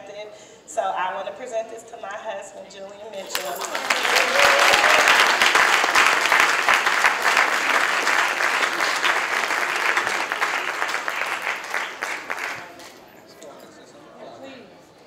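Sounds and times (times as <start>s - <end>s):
audience applauding: 3.2s - 12.8s.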